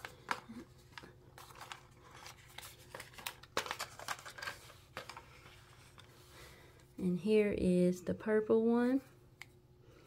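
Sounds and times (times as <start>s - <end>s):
cardboard and plastic packaging rustling: 0.0s - 6.3s.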